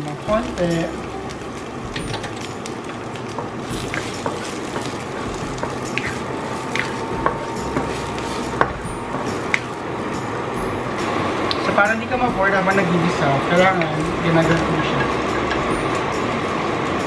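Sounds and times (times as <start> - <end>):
wooden spatula stirring: 0.0 - 11.0
onion sizzling in a frying pan: 0.0 - 17.0.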